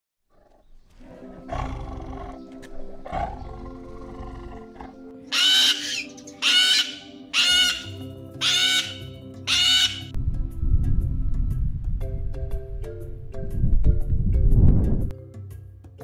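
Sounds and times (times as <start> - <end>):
tiger growling: 0.3 - 5.2
background music sustained notes: 0.6 - 16.0
cockatoos screeching: 5.3 - 10.1.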